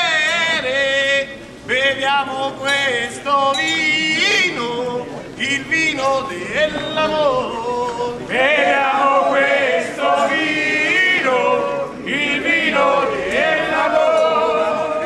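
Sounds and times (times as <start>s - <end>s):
group singing in chorus: 8.2s - 15.0s.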